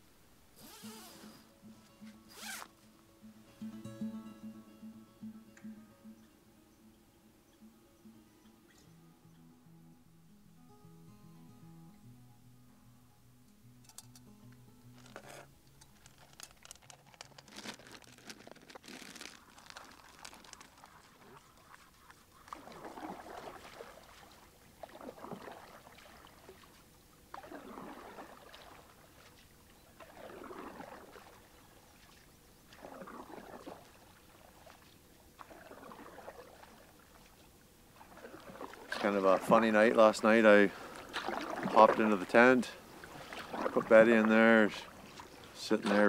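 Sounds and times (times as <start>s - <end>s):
paddle strokes in water: 15.0s - 46.0s
water dripping: 19.1s - 29.4s.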